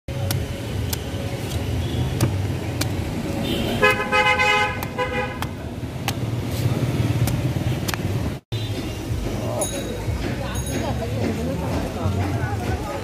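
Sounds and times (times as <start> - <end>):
knife slicing fruit skin: 0.1 - 3.4, 4.6 - 8.2
low road traffic rumble: 0.1 - 13.0
vehicle horn honking: 3.4 - 5.5.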